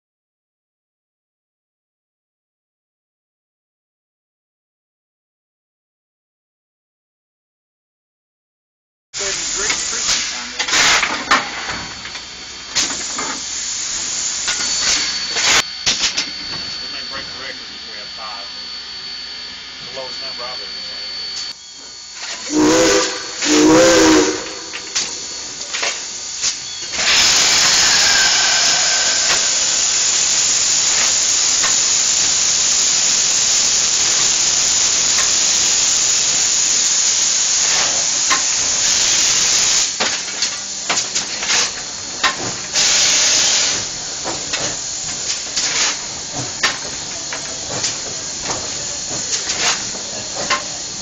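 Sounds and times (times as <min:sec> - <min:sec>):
steam locomotive exhaust puffs: 0:09.2 - 0:18.5, 0:19.9 - 0:51.0
steam locomotive venting steam: 0:09.2 - 0:19.1, 0:19.8 - 0:51.0.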